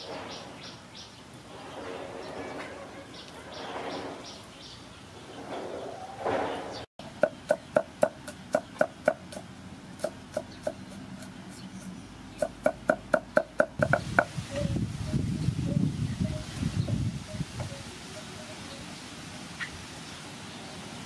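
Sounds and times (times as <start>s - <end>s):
cleaver chopping on wooden board: 12.4s - 14.0s.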